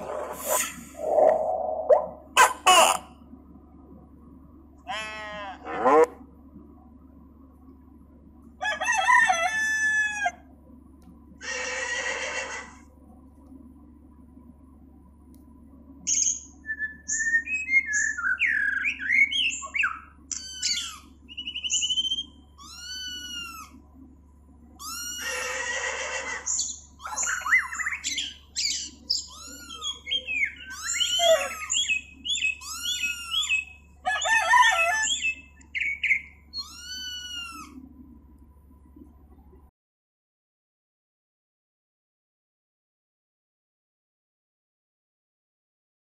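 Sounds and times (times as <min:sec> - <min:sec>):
harsh squawk: 0:00.0 - 0:03.1, 0:24.8 - 0:37.8
recorded birdsong: 0:00.0 - 0:08.4, 0:12.9 - 0:39.6.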